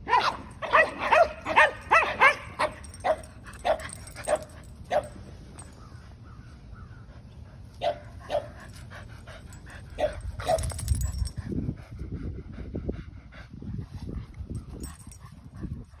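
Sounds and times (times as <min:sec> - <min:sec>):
dog barking: 0:00.0 - 0:05.2, 0:07.8 - 0:08.5.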